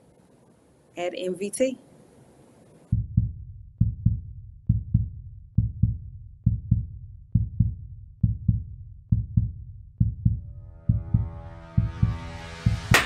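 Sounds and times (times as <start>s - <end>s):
heartbeat thumps: 2.9s - 12.9s.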